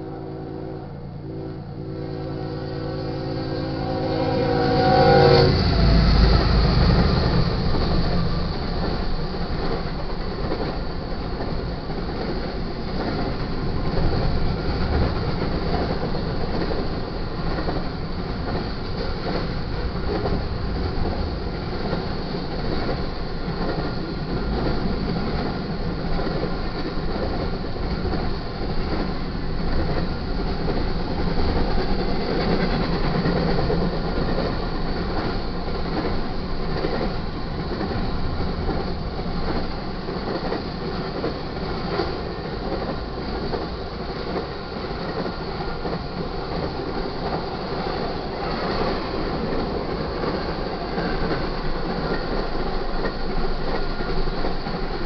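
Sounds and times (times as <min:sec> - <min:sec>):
train diesel horn: 0:00.0 - 0:08.7
train cars rumbling and clacking: 0:00.0 - 0:55.0.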